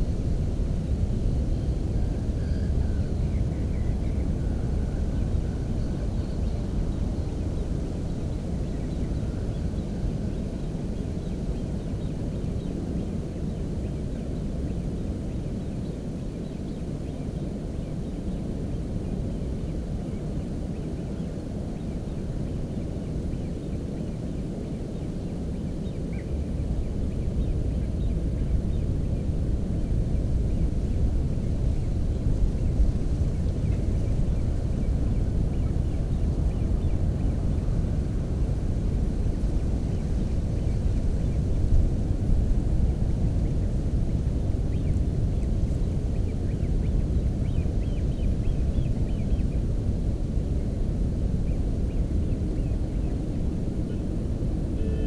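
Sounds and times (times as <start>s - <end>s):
wind buffeting microphone: 0.0s - 55.0s
faint high chirps: 54.8s - 55.0s.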